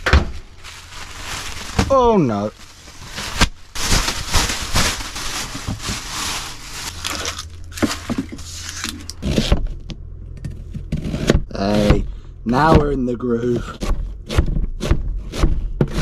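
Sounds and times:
onion skin crinkling: 0:00.4 - 0:09.3.

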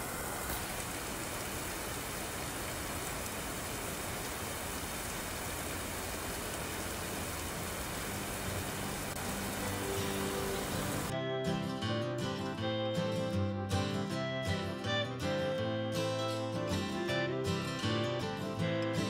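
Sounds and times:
rain falling on pavement: 0:00.0 - 0:11.1.

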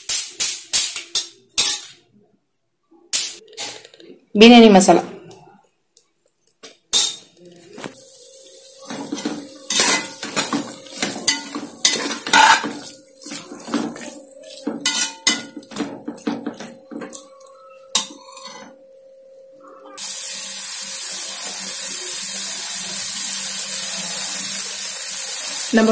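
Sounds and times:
spatula scraping metal pot: 0:09.0 - 0:16.5, 0:18.0 - 0:18.7.

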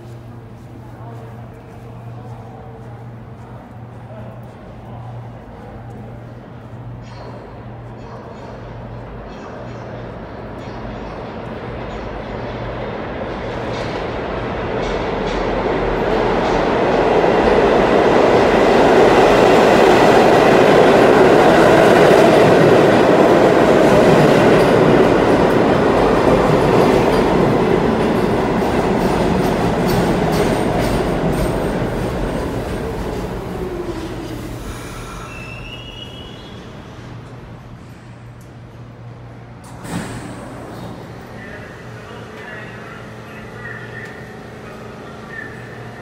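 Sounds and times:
subway train wheels rumbling: 0:00.0 - 0:46.0
high brake squeal: 0:34.6 - 0:36.8.

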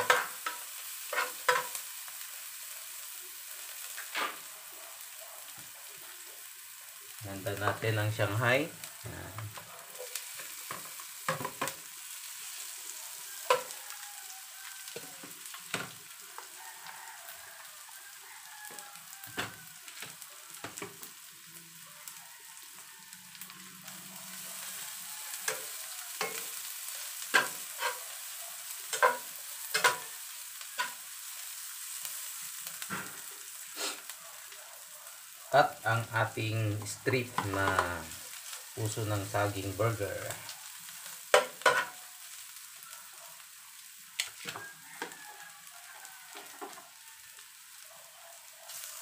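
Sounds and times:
spatula scraping and knocking pan: 0:00.0 - 0:01.8, 0:13.5 - 0:13.7, 0:25.4 - 0:26.6, 0:27.3 - 0:28.0, 0:28.9 - 0:30.1, 0:36.8 - 0:37.9, 0:41.3 - 0:41.9
food sizzling in frying pan: 0:00.0 - 0:49.0.

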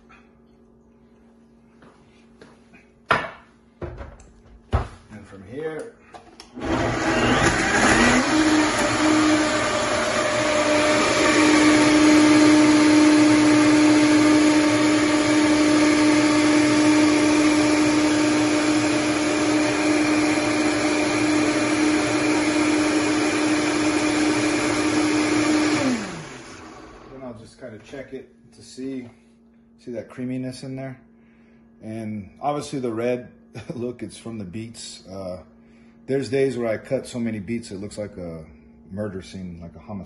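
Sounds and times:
blender motor blending: 0:06.5 - 0:27.3.

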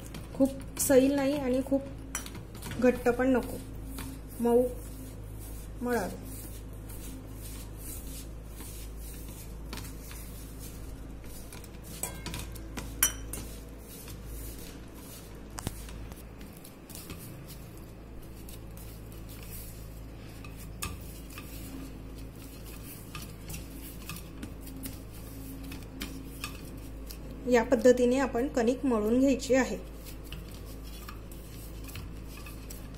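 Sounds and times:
hands kneading dough: 0:00.0 - 0:32.9
metal bowl clinking and scraping: 0:11.5 - 0:14.6.

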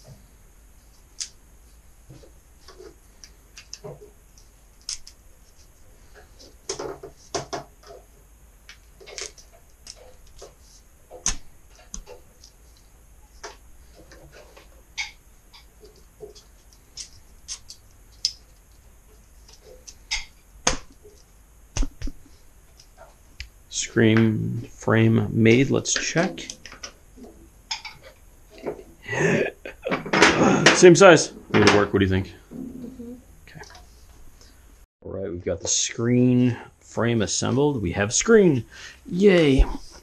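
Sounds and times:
low steady hum: 0:00.0 - 0:40.0
sharp clicks and knocks of frame: 0:08.6 - 0:12.6.

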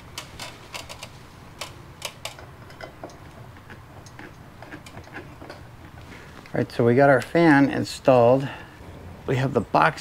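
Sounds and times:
metal parts clicking and tapping: 0:00.1 - 0:05.6.

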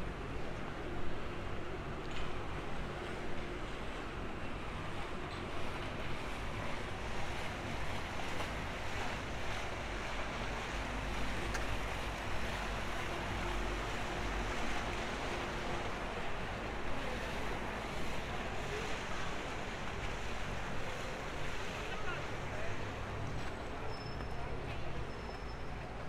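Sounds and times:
water washing: 0:05.6 - 0:24.0.

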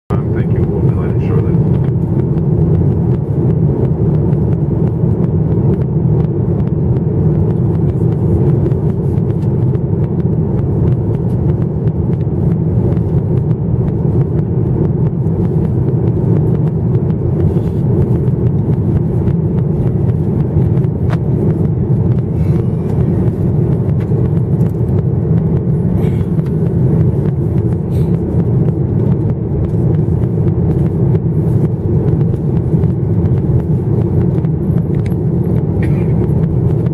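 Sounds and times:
aircraft engines rumbling: 0:00.1 - 0:36.9.

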